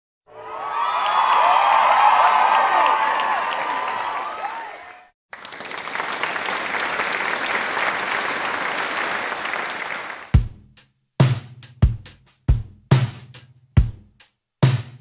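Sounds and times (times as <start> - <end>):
crowd cheering with whistles: 0.3 - 10.3
crowd applause: 0.3 - 10.4
drum kit beat with kick drum: 10.4 - 15.0.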